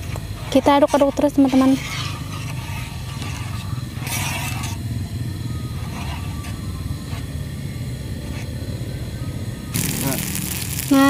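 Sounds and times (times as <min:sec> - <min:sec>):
spoon stirring thick batter: 0:00.0 - 0:04.8, 0:05.7 - 0:07.3
gas stove low rumble: 0:00.0 - 0:11.0
spoon scraping pan: 0:00.4 - 0:04.8, 0:05.8 - 0:07.2.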